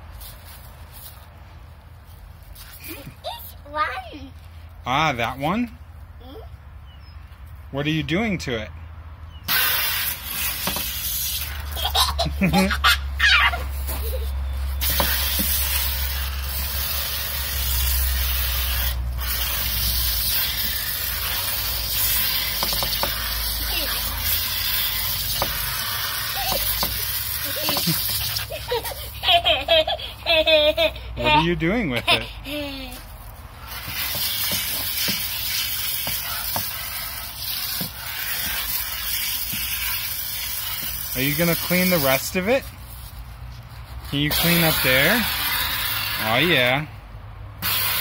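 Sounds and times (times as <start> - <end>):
hose spray hissing: 9.5 - 12.8, 13.6 - 29.5, 33.6 - 43.2, 44.0 - 46.8, 47.6 - 48.0.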